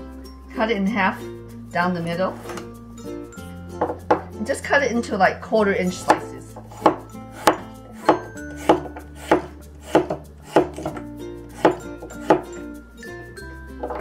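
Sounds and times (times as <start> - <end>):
cleaver chopping on wooden board: 6.0 - 11.0, 11.6 - 12.5.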